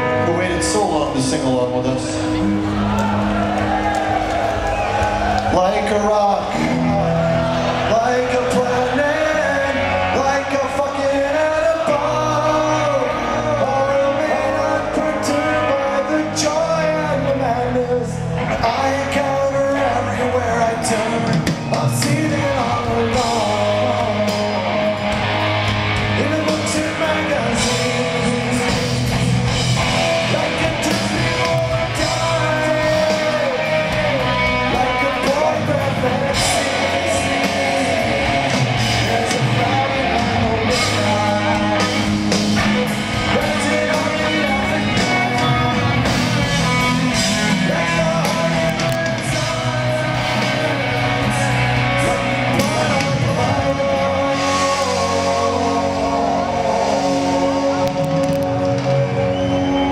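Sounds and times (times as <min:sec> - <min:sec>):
man singing: 0:00.0 - 0:02.4, 0:05.5 - 0:59.9
bass guitar: 0:00.0 - 0:59.9
distorted electric guitars: 0:00.0 - 0:59.9
drums: 0:00.0 - 0:59.9.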